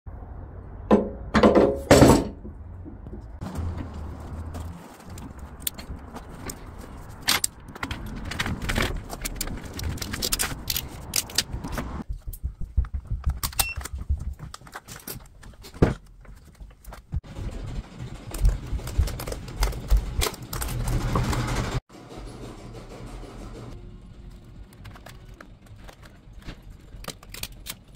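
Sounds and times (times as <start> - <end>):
clicks and scrapes: 3.6 - 12.0.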